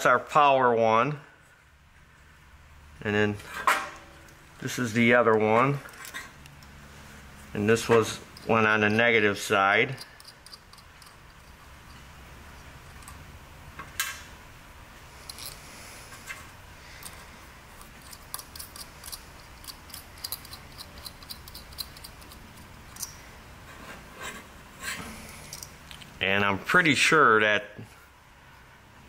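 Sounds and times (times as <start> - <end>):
metallic clicks of wire terminals: 9.9 - 13.3, 17.8 - 23.2.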